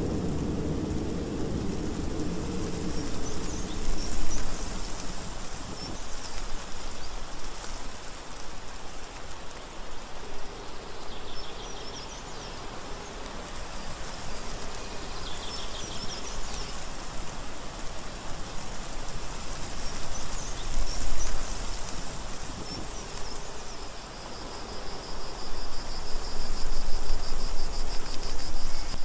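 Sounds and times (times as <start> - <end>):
low rumble: 0.0 - 5.8
steady rushing hiss: 0.0 - 29.0.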